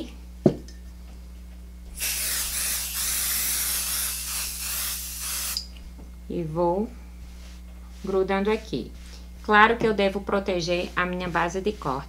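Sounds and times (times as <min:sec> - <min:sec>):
aerosol can spraying: 0:02.0 - 0:05.7.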